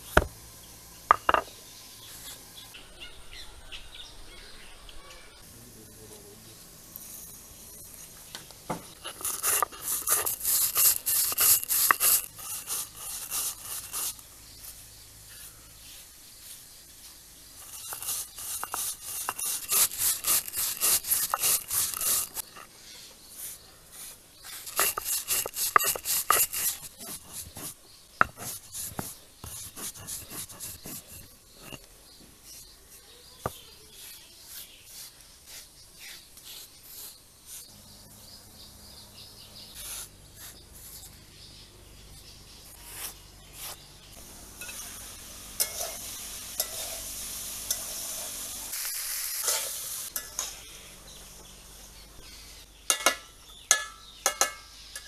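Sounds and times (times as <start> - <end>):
stone roller scraping seeds: 1.1 - 1.5, 6.9 - 14.7, 17.6 - 37.7, 45.6 - 51.5.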